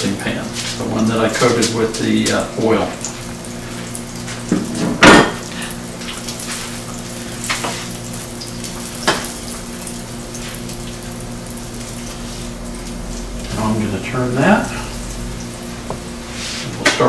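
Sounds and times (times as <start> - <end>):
meat sizzling in a frying pan: 0.4 - 16.8.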